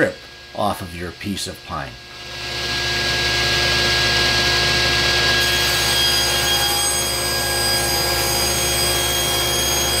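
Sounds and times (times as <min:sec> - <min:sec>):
table saw ripping wood: 0:05.2 - 0:10.0.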